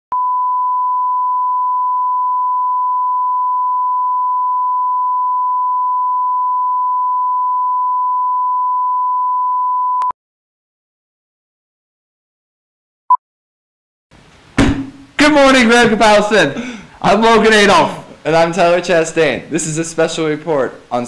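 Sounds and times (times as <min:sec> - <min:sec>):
steady sine test tone: 0:00.1 - 0:10.1.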